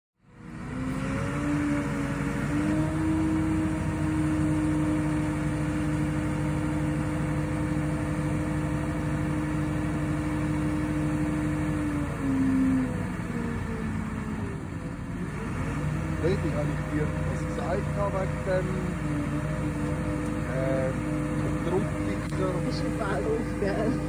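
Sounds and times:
crane truck engine whining: 0.2 - 24.0.

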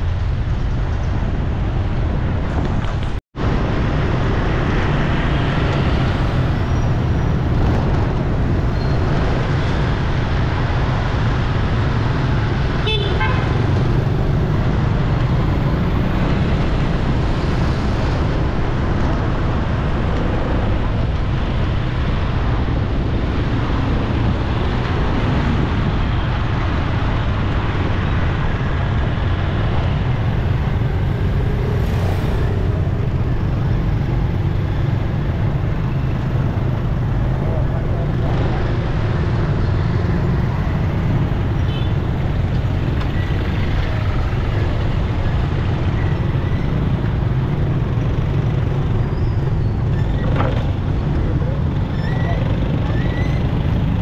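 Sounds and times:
road traffic noise: 0.0 - 54.0
vehicle horn tooting: 12.8 - 13.6.

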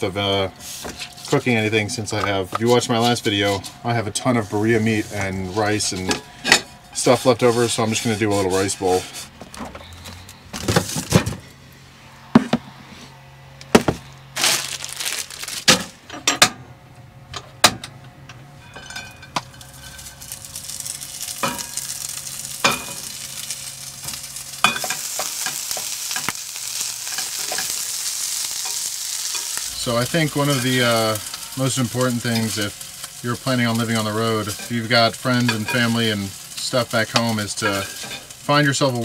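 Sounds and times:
meat and rice sizzling in pan: 0.0 - 9.3, 19.1 - 39.0.

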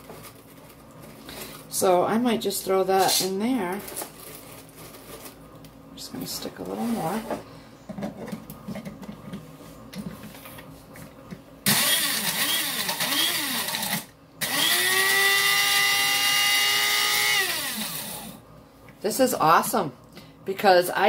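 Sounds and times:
coffee grinder motor grinding: 11.7 - 18.4.

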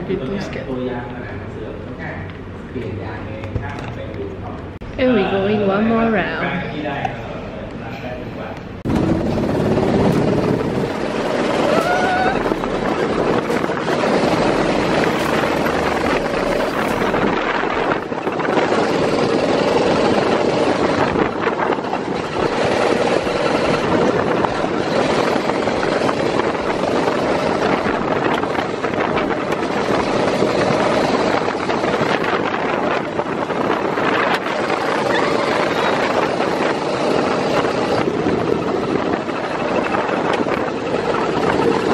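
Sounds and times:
wind buffeting microphone: 8.0 - 41.9
go-kart engine buzzing: 8.9 - 41.9.

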